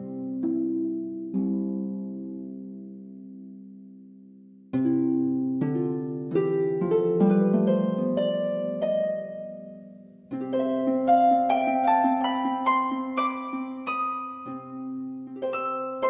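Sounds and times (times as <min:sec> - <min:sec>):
plucked string music: 0:04.7 - 0:16.0.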